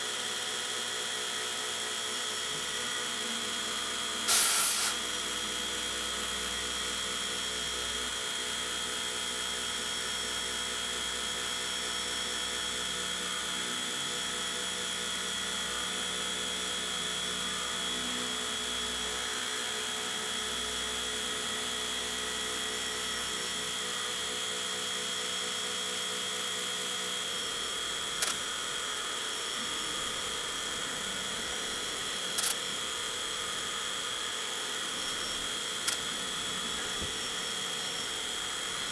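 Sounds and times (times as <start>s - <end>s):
milling machine cutting steel: 2.4s - 5.3s.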